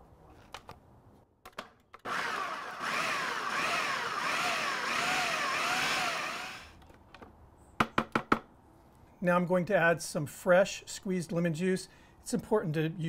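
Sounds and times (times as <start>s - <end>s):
food processor motor whining: 2.1s - 6.7s.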